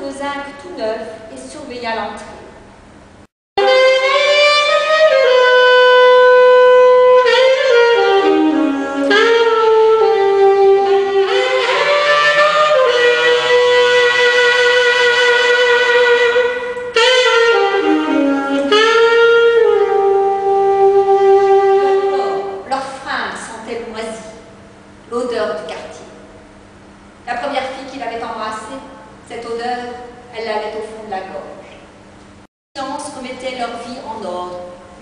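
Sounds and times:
saxophone slow melody: 0:03.6 - 0:22.7.

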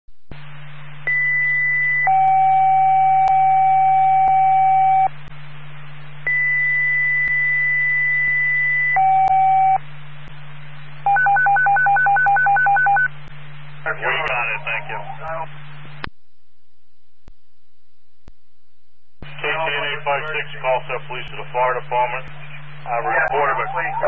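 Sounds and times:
low hum and hiss: 0:00.1 - 0:24.0
radio paging tones: 0:11.1 - 0:13.1, 0:19.3 - 0:24.0.

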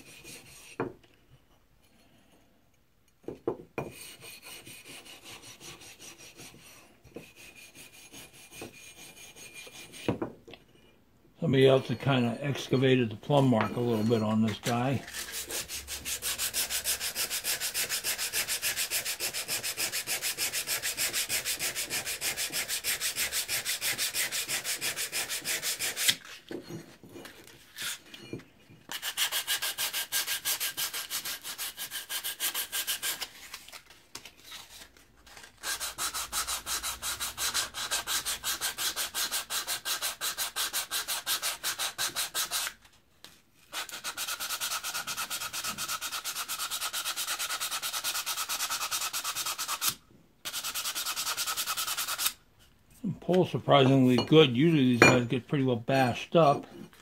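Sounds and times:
sandpaper rasping on steel: 0:00.0 - 0:00.8, 0:03.9 - 0:10.1, 0:13.8 - 0:26.4, 0:28.9 - 0:33.5, 0:35.5 - 0:42.8, 0:43.7 - 0:52.4.

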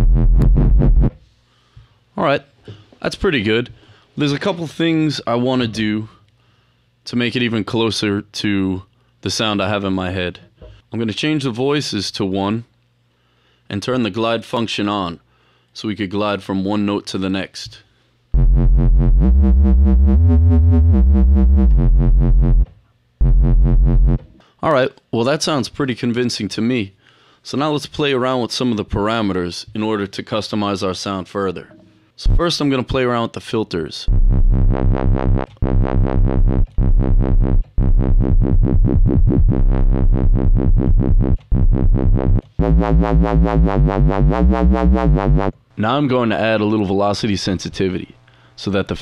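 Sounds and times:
wobble bass synth: 0:00.0 - 0:01.2, 0:18.4 - 0:24.3, 0:32.3 - 0:32.5, 0:34.1 - 0:45.6.

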